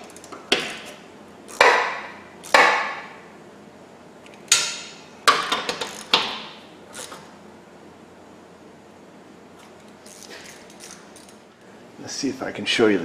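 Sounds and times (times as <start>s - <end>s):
ratchet clicks: 5.7s - 6.3s, 10.0s - 11.4s.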